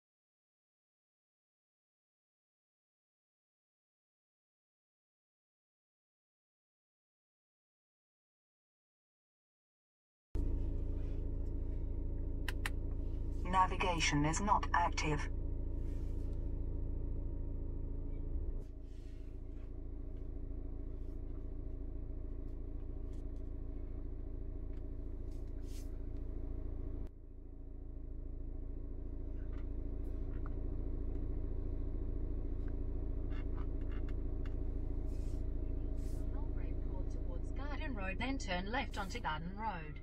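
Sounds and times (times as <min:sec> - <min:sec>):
car engine idling: 0:10.4 - 0:40.0.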